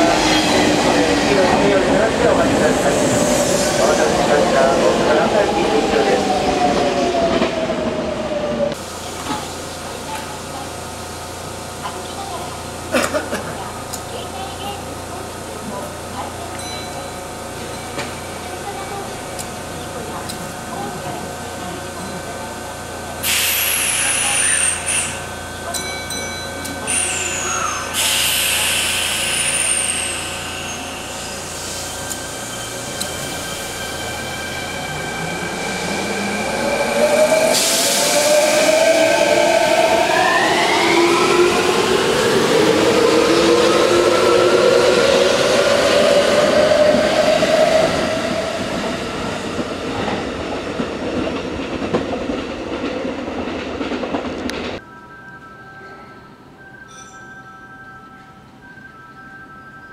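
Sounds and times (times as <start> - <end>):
train wheels rumbling: 0.0 - 54.8
compressed air hissing with whistle: 26.9 - 33.9.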